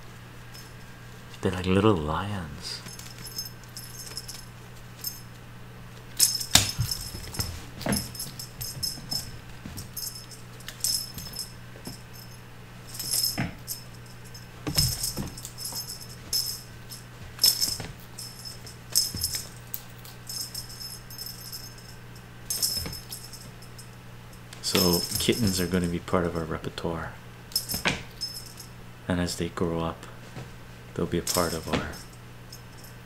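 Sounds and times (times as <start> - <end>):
cat toy jingling: 2.8 - 5.4, 6.2 - 25.9, 27.5 - 28.7, 31.2 - 33.0
kittens landing with soft thumps: 6.2 - 10.1, 14.6 - 16.6.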